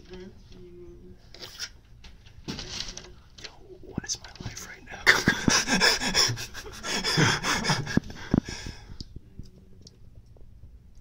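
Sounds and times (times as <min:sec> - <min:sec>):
person huffing breathily: 0:05.0 - 0:09.0.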